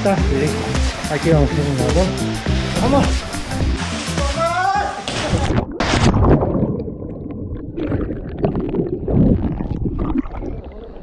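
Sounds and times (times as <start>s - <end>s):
splash into pool: 3.8s - 6.7s
muffled churning water: 4.9s - 11.0s.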